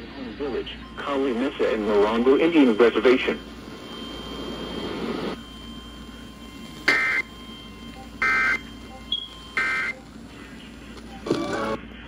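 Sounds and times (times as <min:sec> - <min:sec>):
buzzy two-tone data bursts: 0:08.2 - 0:10.0.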